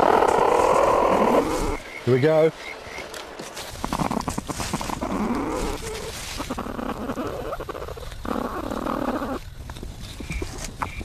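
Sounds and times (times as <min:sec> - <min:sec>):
rough throaty animal sounds: 0:00.0 - 0:01.8
scratching and rustling of nest: 0:03.0 - 0:11.0.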